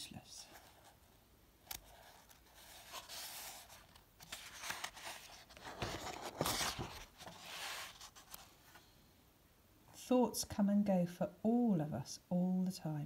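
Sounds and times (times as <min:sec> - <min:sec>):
book pages turning: 0:01.6 - 0:08.8.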